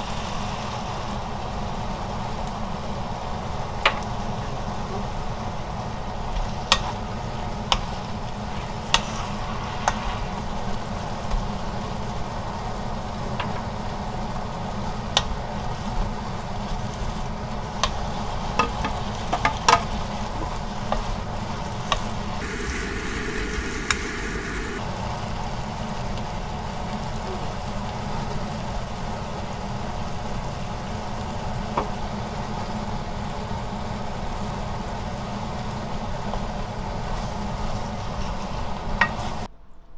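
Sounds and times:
vegetables sizzling in a frying pan: 0.0 - 21.5, 22.4 - 24.8.

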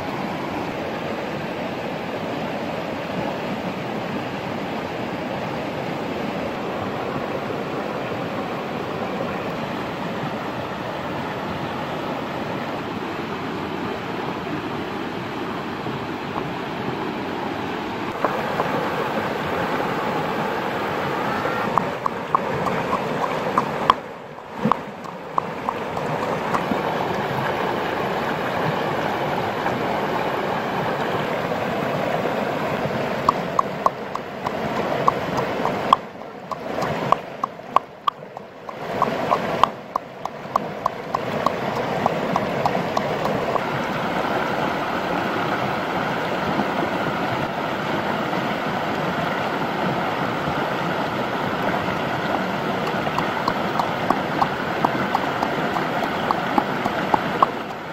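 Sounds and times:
stream water rushing: 0.0 - 57.9
pestle pounding in bowl: 21.7 - 24.0, 24.6 - 26.9, 33.3 - 43.7, 52.8 - 57.8.

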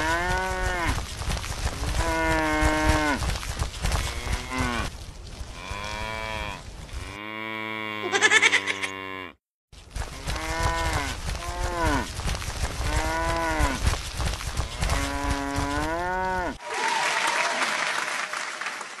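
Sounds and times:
cow mooing: 5.6 - 9.4.

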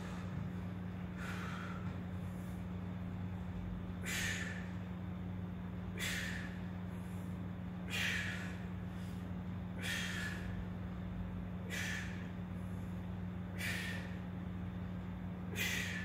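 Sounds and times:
steady low hum: 0.0 - 16.0
man breathing out forcefully: 1.1 - 2.6, 4.0 - 4.8, 5.9 - 10.6, 11.6 - 12.9, 13.5 - 14.3, 15.5 - 16.0.

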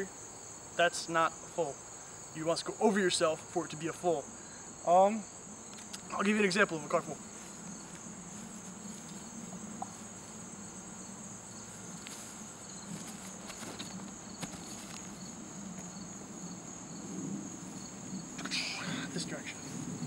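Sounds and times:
cricket chirping: 0.0 - 20.0
insects chirring: 0.0 - 20.0
bare footsteps on grass: 5.7 - 16.5.

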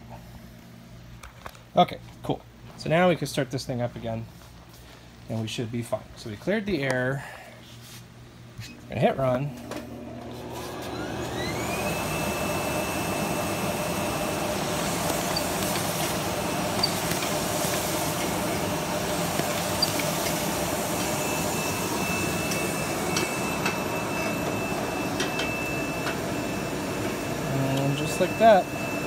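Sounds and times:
mechanical hum: 0.0 - 29.0
machine high whine: 10.4 - 29.0.

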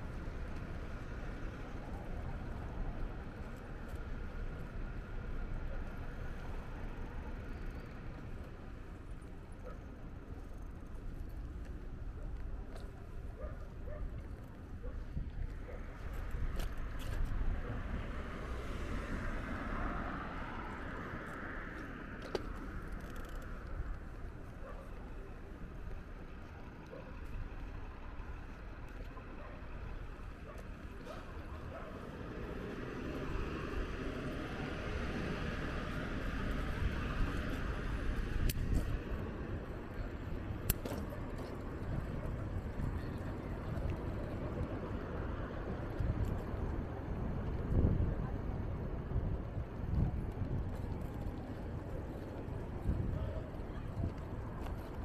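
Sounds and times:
bicycle ride rumble: 0.0 - 55.0
car passing: 17.6 - 23.4, 31.0 - 40.3
wind on microphone: 45.6 - 54.6.

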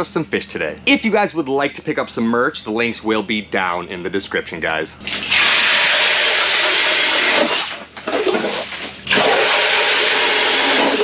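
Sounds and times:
ice auger grinding: 5.1 - 11.0.

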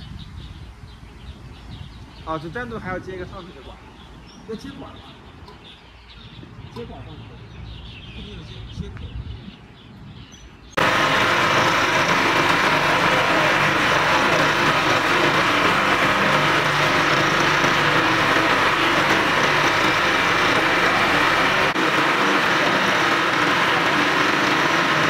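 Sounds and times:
ice machine running: 10.8 - 25.0.

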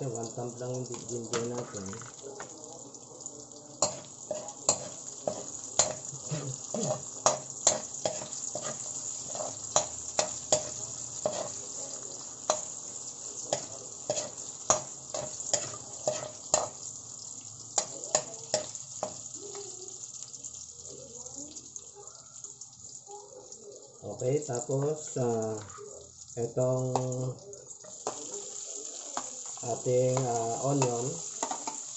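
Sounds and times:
garlic sizzling in hot oil: 0.0 - 31.9
metal spoon scraping a wok: 3.8 - 6.0, 6.8 - 11.7, 13.5 - 16.8.

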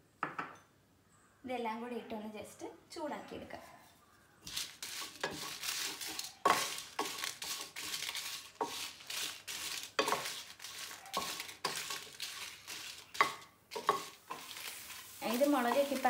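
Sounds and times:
light sizzle: 4.4 - 16.0
spatula scraping frying pan: 4.4 - 16.0.

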